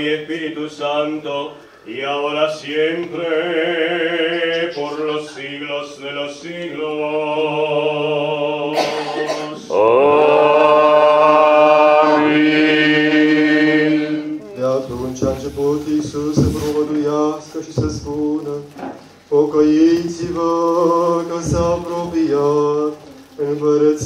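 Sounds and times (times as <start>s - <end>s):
men chanting: 0.0s - 18.5s.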